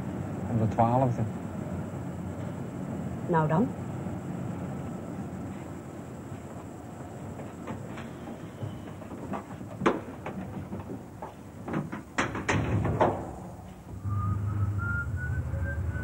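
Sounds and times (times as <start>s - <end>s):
irregular knocks and clatter: 6.4s - 14.0s
music with low drone and high melody: 14.0s - 16.0s.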